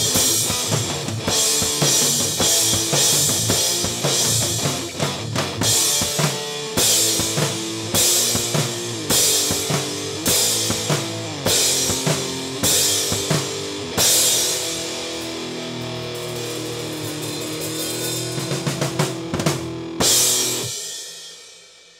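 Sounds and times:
drum kit with cymbal crashes: 0.0s - 21.9s
sustained guitar chords: 6.6s - 20.7s.

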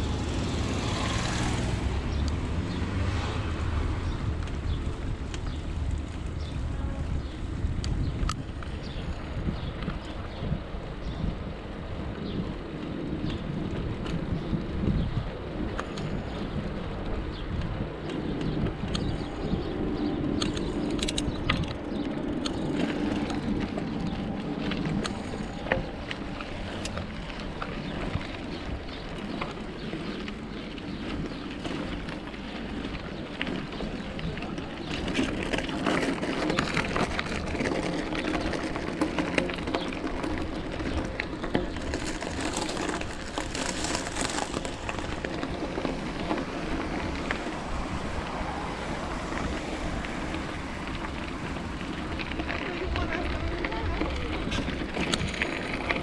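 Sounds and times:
bicycle rolling noise: 0.0s - 56.0s
wind noise: 0.0s - 56.0s
small clicks and rattles: 20.3s - 32.3s, 51.0s - 56.0s.

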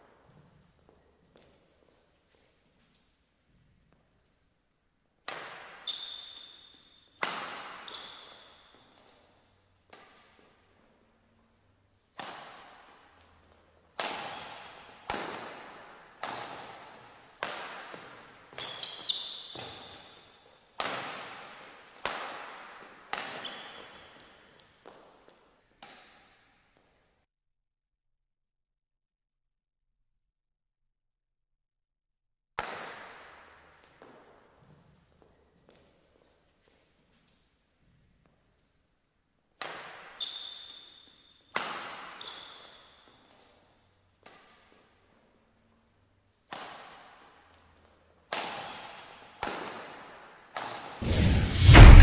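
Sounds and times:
racket hitting shuttlecock: 5.2s - 9.2s, 9.9s - 10.6s, 12.1s - 18.8s, 20.8s - 24.0s, 39.6s - 40.2s, 41.5s - 42.2s, 46.5s - 47.2s, 48.3s - 50.7s
shoes squeaking on court: 5.8s - 10.5s, 16.2s - 20.7s, 21.3s - 25.1s, 32.6s - 33.2s, 33.8s - 36.9s, 40.2s - 41.5s, 42.1s - 43.6s, 50.6s - 51.0s.

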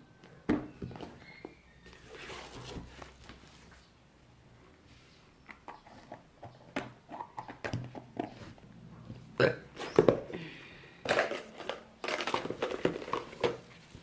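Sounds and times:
rustling: 1.8s - 4.0s.

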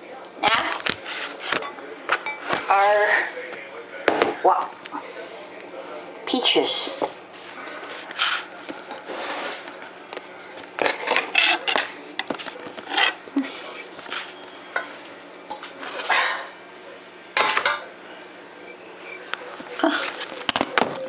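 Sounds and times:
kitchenware clattering: 0.5s - 3.2s, 8.4s - 16.6s, 17.3s - 18.0s.

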